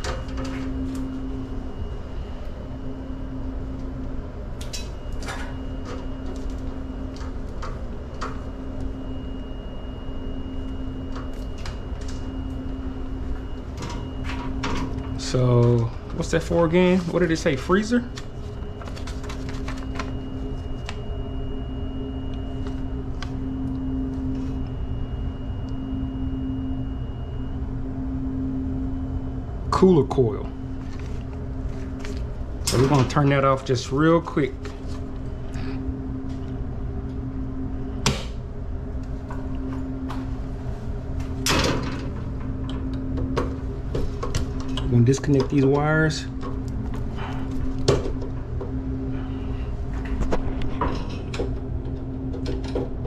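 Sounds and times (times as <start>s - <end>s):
low machinery hum: 0.0s - 53.0s
paper card clicks and rustles: 18.1s - 20.1s
gloved hands handling wires: 18.1s - 21.0s.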